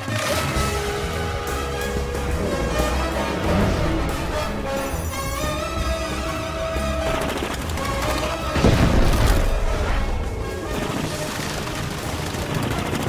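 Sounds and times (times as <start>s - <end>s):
orchestral score: 0.0s - 13.0s
rapid gunfire: 5.7s - 13.0s
explosion: 8.6s - 10.2s.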